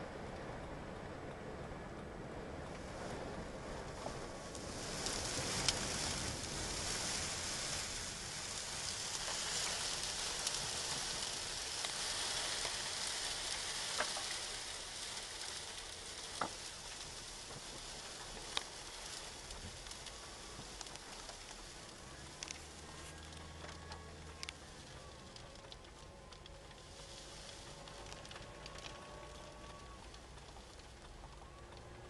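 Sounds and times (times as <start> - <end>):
sand hissing against vehicle: 4.1 - 25.5, 26.7 - 30.7.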